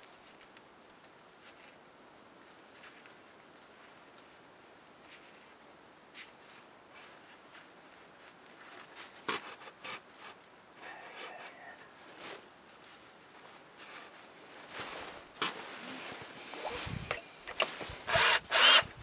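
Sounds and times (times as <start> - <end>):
hand tool clicks: 17.1 - 18.9.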